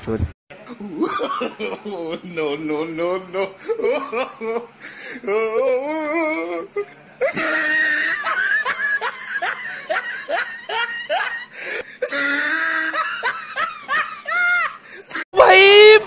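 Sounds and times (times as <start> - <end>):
person laughing: 7.2 - 16.0.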